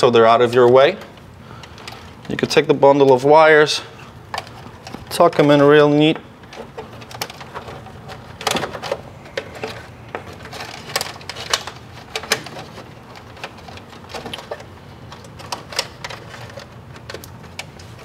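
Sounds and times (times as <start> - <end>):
steady low hum: 0.0 - 18.0
wires clicking and rustling: 0.0 - 18.0.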